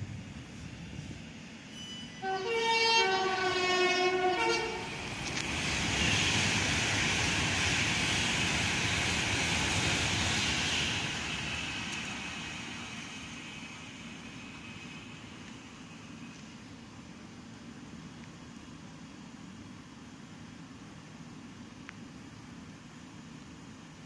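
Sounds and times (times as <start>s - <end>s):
train rumbling on tracks: 0.0s - 24.0s
train two-tone horn: 1.8s - 5.0s.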